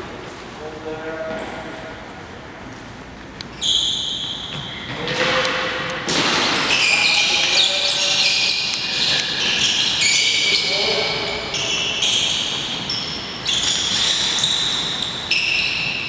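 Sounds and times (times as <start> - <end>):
sneakers squeaking on hardwood: 3.5 - 5.7, 6.3 - 16.0
basketballs bouncing: 4.1 - 16.0.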